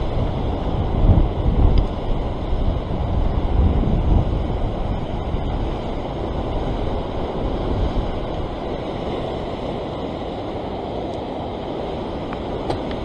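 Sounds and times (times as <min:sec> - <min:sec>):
ocean surf breaking on rocks: 0:00.0 - 0:13.0
wind buffeting microphone: 0:00.0 - 0:13.0.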